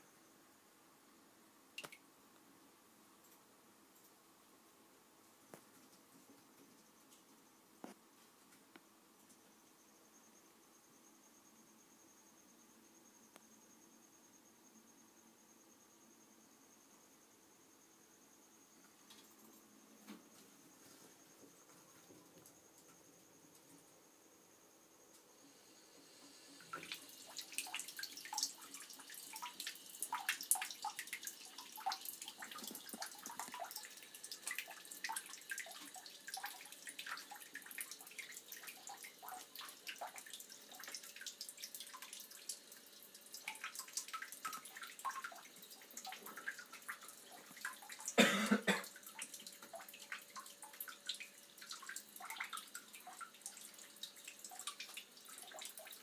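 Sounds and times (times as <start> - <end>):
water dripping into bathtub: 1.8 - 2.0, 26.5 - 56.0.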